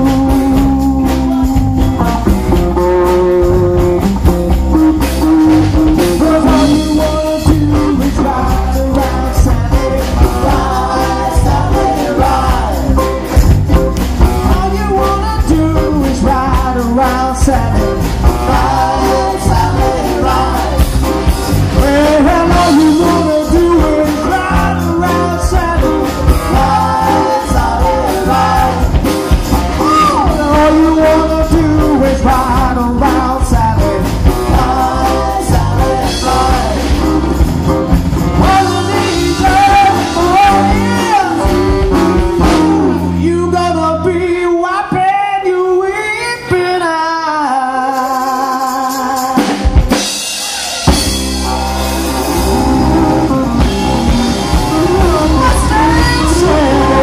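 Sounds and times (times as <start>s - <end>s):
lead vocal singing: 0.0s - 37.6s, 38.2s - 57.0s
live soul-rock band: 0.0s - 57.0s
backing singers: 5.1s - 37.5s, 38.2s - 43.6s, 49.4s - 57.0s.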